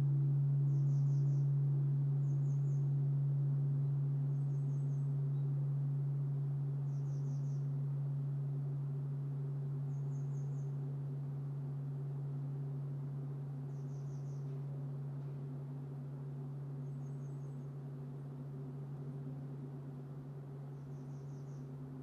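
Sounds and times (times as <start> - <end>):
small bird chirping: 0.7 - 1.5, 2.2 - 2.9, 4.3 - 5.5, 6.9 - 7.7, 9.9 - 10.8, 13.7 - 15.3, 16.8 - 17.8, 20.7 - 21.8.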